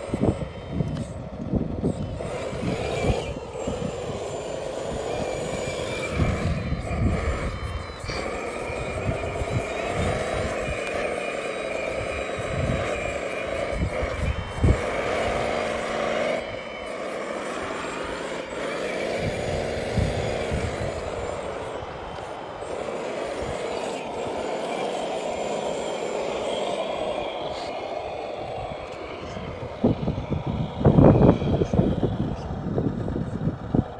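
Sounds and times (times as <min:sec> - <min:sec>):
model wheel loader motors whining: 0:00.0 - 0:33.9.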